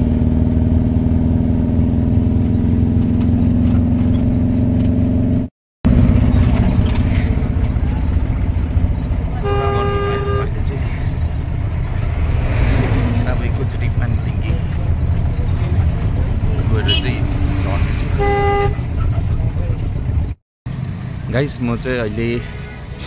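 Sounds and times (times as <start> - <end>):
van engine and road noise: 0.0 - 23.0
vehicle horn: 9.3 - 10.8, 16.8 - 17.4, 18.1 - 19.0.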